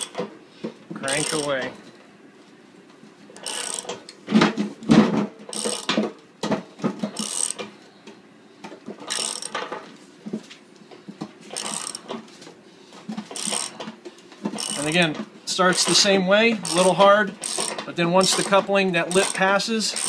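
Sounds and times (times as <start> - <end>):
wrench metallic strokes: 1.0 - 1.5, 3.4 - 4.0, 5.6 - 5.9, 7.2 - 7.6, 9.1 - 9.6, 11.5 - 12.1, 13.4 - 13.8, 14.6 - 15.0, 15.6 - 20.0.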